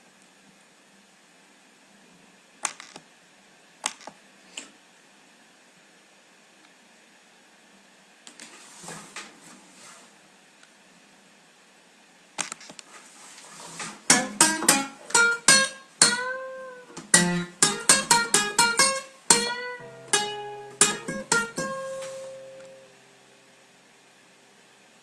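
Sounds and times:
acoustic guitar strumming and plucking: 13.8 - 22.9.

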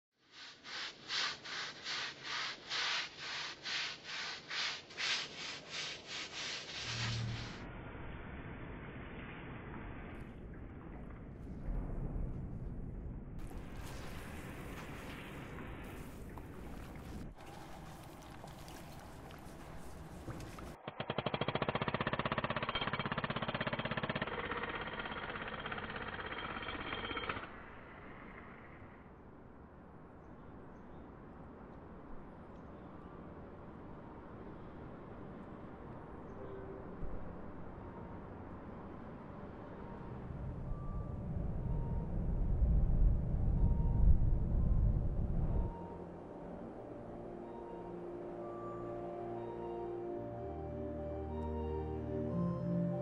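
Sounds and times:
scrubbing on wet stone: 0.6 - 7.3, 13.4 - 20.8.

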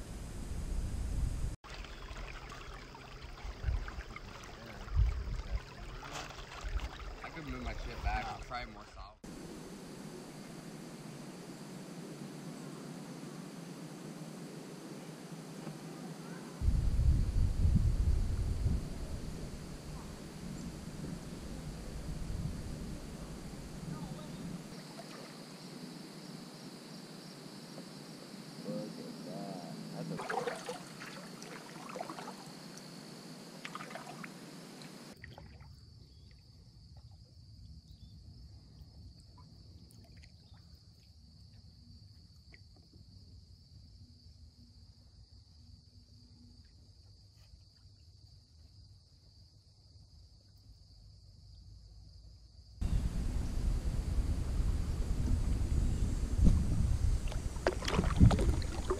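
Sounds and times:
water trickling and dripping: 1.6 - 8.6, 30.2 - 32.9, 56.5 - 58.9.

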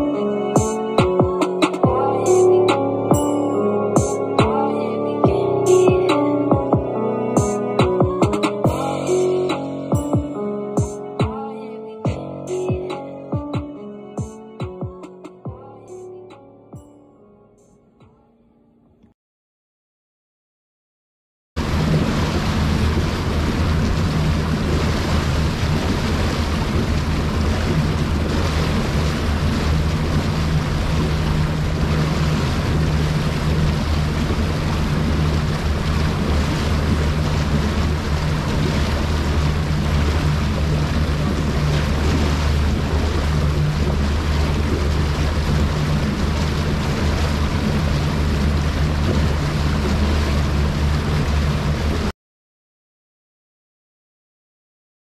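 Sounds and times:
wind and water rushing: 0.0 - 11.4, 21.6 - 52.1
outboard engine drone: 0.0 - 18.8, 21.6 - 52.1.

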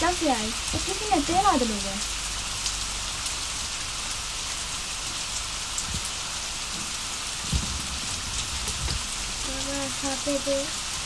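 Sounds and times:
rain hissing: 0.0 - 11.0
soft low thumps: 5.8 - 9.5.

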